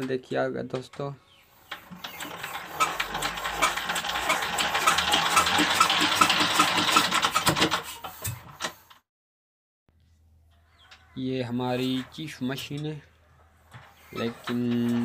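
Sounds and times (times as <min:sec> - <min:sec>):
diesel engine being hand-cranked: 0:01.5 - 0:08.9, 0:13.7 - 0:15.0.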